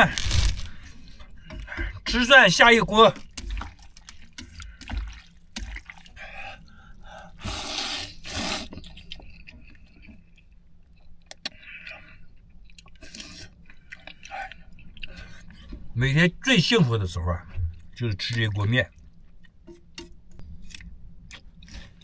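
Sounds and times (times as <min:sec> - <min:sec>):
man eating noodles: 0:03.2 - 0:15.7.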